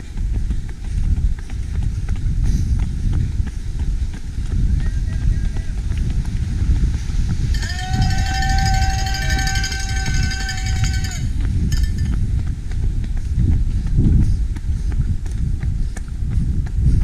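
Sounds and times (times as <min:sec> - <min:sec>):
running footsteps on tarmac: 0:00.0 - 0:17.0
wind rumble on microphone: 0:00.0 - 0:17.0
steady high note: 0:07.6 - 0:12.1.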